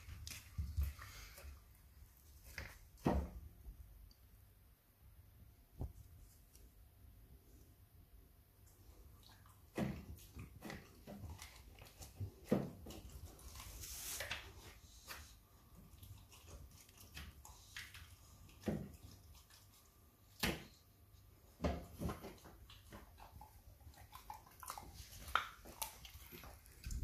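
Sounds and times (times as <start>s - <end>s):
puppy gnawing and licking bone: 0.0s - 2.8s, 8.6s - 27.0s.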